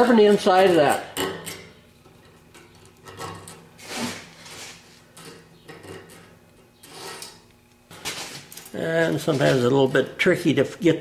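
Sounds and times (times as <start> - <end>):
metal file scraping steel: 6.8 - 7.4.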